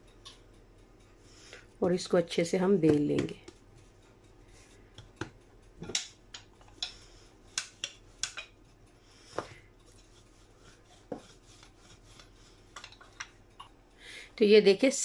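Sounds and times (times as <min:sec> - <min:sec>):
dough rubbing on countertop: 0:09.0 - 0:13.3.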